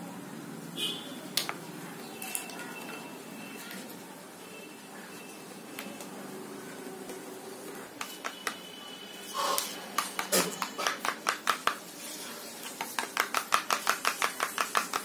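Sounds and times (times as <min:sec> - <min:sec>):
metal spoon beating eggs: 0:09.4 - 0:15.0.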